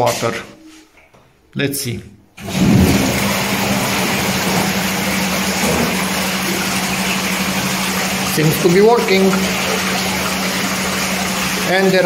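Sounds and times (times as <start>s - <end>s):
pump motor hum: 2.4s - 12.0s
water jets churning: 2.4s - 12.0s.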